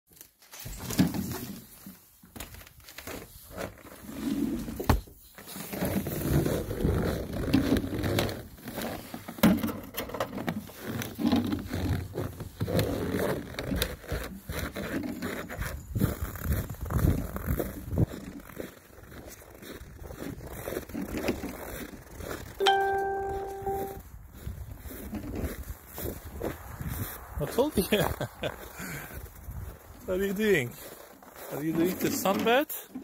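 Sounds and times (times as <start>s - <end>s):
footsteps crunching through snow: 11.6s - 32.3s.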